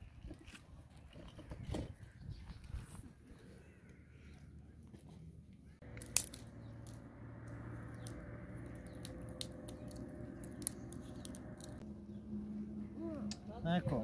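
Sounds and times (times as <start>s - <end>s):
twig fire crackling: 5.8s - 11.8s.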